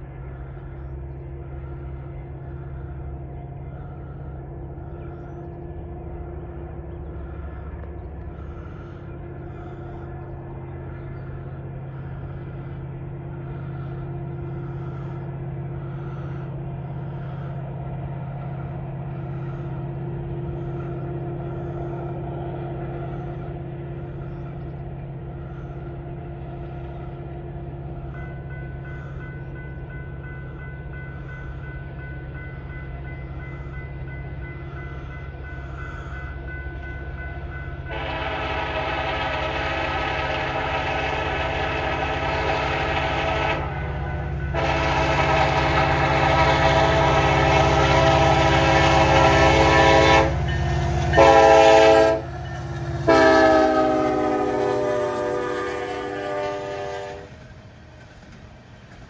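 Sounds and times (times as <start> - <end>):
freight train rumbling: 0.0 - 59.0
train wheels clicking: 32.4 - 59.0.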